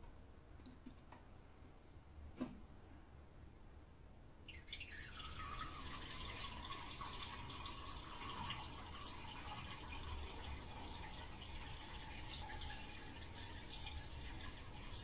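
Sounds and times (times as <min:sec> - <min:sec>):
trickling stream of liquid: 0:04.4 - 0:15.0.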